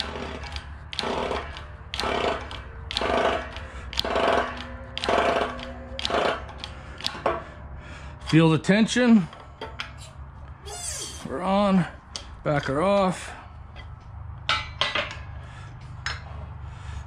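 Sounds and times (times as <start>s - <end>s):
hydraulic jack pumping: 0.0s - 8.5s.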